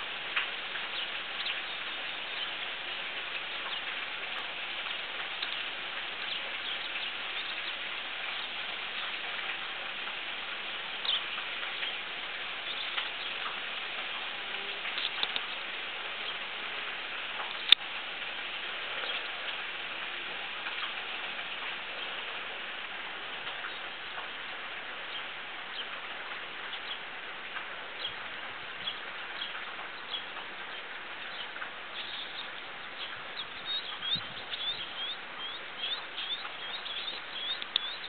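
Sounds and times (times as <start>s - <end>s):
steady outdoor hiss: 0.0s - 38.0s
swallows chirping: 31.2s - 38.0s.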